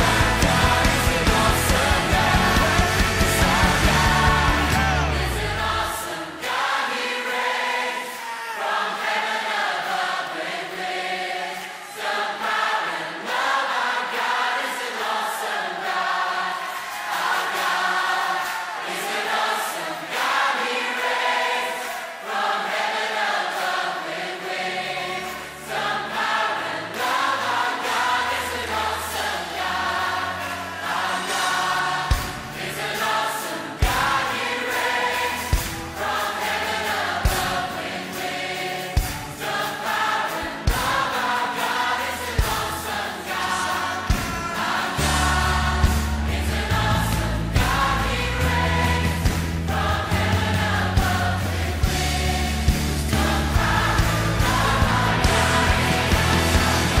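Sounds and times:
low bass notes: 0:00.0 - 0:05.8, 0:45.0 - 0:57.0
choir singing sustained lines: 0:00.0 - 0:57.0.

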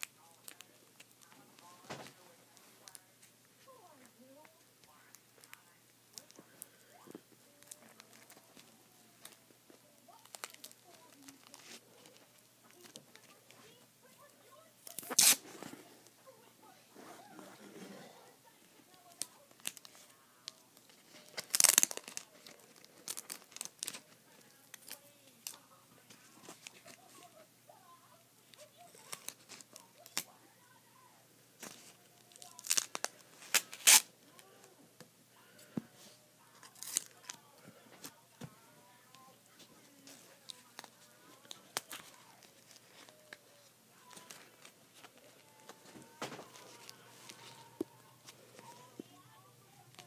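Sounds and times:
paper and tape rustling: 0:07.5 - 0:15.9, 0:18.9 - 0:27.4, 0:28.5 - 0:30.3, 0:31.6 - 0:34.5, 0:36.6 - 0:38.5, 0:39.5 - 0:49.0
masking tape ripping: 0:14.8 - 0:15.7, 0:21.1 - 0:24.0, 0:31.6 - 0:34.1, 0:36.6 - 0:37.3.

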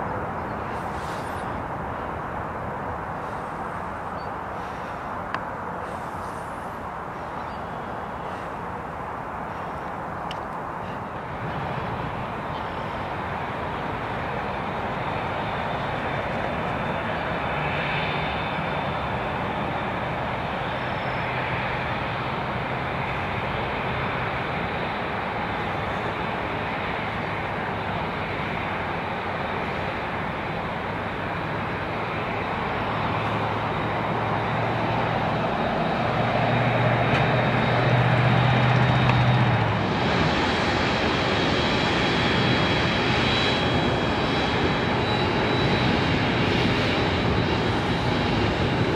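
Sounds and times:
jet engines rumbling: 0:00.0 - 0:48.9.

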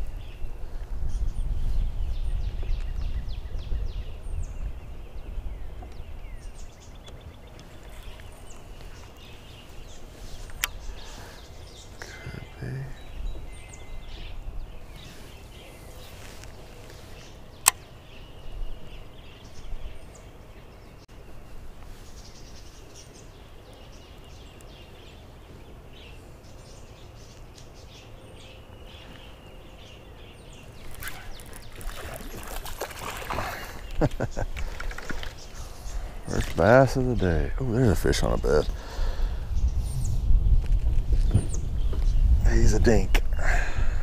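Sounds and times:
faint bird chirps: 0:00.0 - 0:40.2
sharp click: 0:17.6 - 0:17.9
water splashing: 0:30.8 - 0:35.5.

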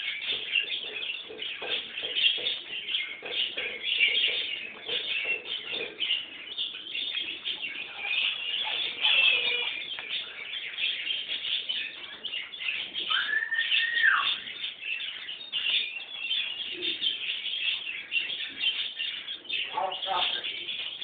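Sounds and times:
chicks cheeping: 0:00.0 - 0:21.0
rising and falling call: 0:13.1 - 0:14.4.

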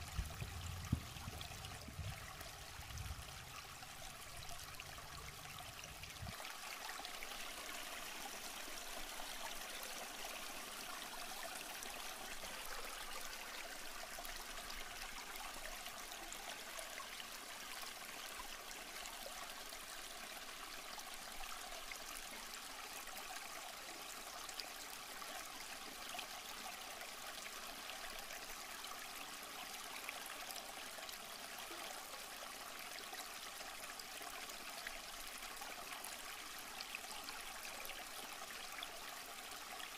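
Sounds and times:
river flowing: 0:00.0 - 0:25.1.

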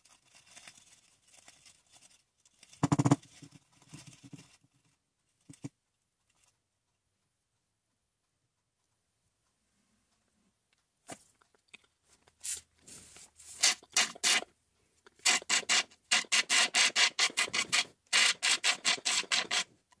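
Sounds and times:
plastic straw rasping in cup: 0:13.4 - 0:14.5, 0:15.1 - 0:19.7.

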